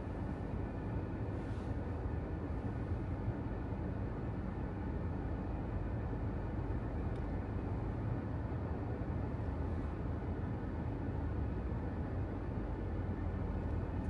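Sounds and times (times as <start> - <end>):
car driving in traffic: 0.0 - 14.0.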